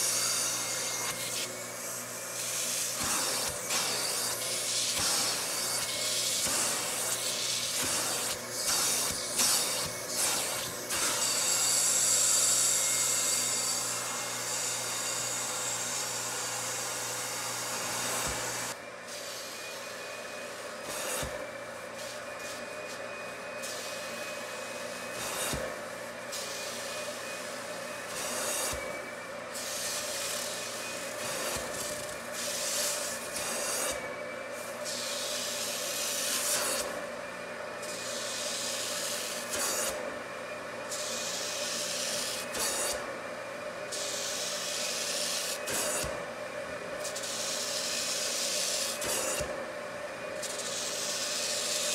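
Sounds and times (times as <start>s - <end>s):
suction tool rasping on fabric: 0.0s - 17.0s, 24.7s - 29.0s
vacuum motor whining: 0.0s - 51.9s.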